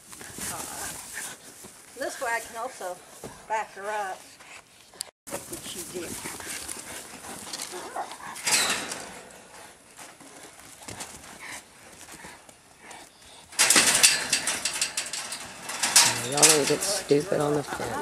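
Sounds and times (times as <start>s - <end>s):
hooves scuffling on dirt: 0.0s - 8.3s, 9.2s - 13.5s.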